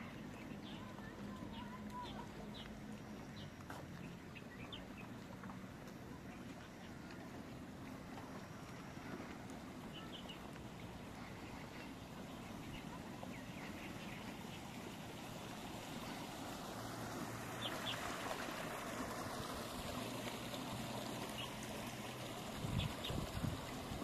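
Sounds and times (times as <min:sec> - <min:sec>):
wind and water hiss: 0:00.0 - 0:24.0
wind buffeting microphone: 0:22.4 - 0:24.0.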